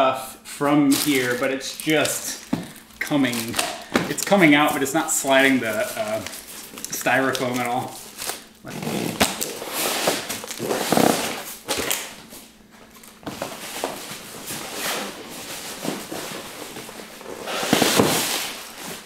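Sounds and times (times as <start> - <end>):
styrofoam and cardboard scraping: 9.0 - 11.5, 14.5 - 19.0.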